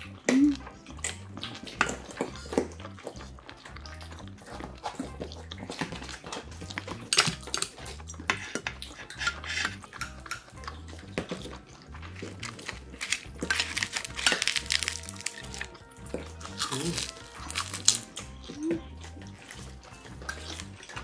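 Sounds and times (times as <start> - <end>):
chopsticks clinking on metal bowl: 12.4 - 15.7.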